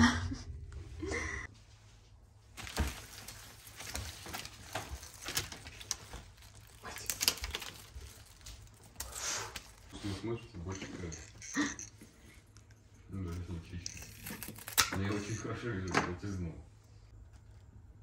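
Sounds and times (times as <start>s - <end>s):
flower stems and leaves rustling: 1.6s - 11.1s
wrapping paper crinkling: 2.5s - 10.0s.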